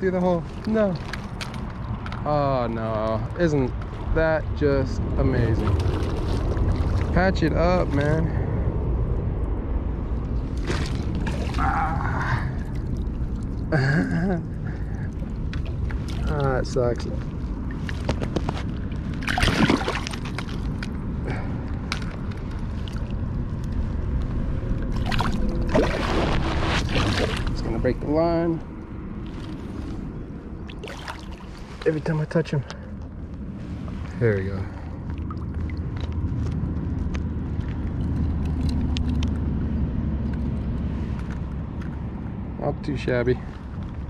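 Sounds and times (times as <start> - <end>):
river water rumbling: 0.0 - 42.4
knocks and splashes: 5.6 - 7.2, 10.5 - 13.0, 15.1 - 16.5, 17.7 - 21.0, 24.9 - 27.7, 30.7 - 31.7
rushing river water: 30.7 - 31.8.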